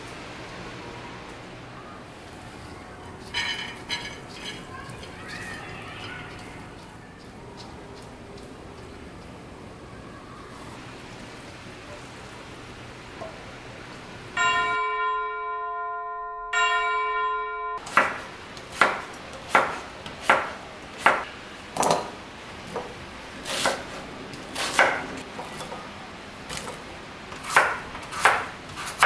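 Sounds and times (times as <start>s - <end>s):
bell-like chime: 14.4s - 17.8s
knife chopping on wooden board: 17.9s - 22.1s, 27.4s - 29.0s.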